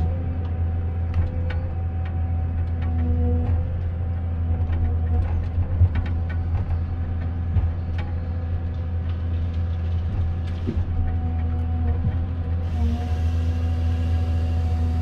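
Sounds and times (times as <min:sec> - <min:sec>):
diesel engine humming: 0:00.0 - 0:15.0
machine knocks and clicks: 0:01.1 - 0:12.5.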